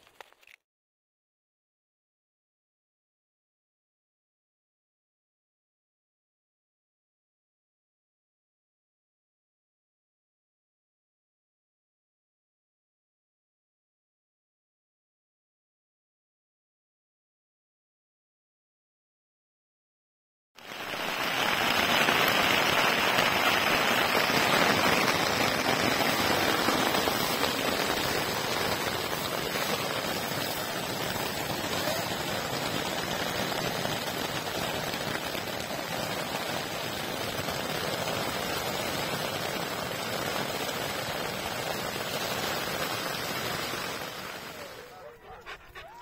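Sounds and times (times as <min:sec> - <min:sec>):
rain on a tent: 0:00.0 - 0:00.6, 0:20.6 - 0:45.2.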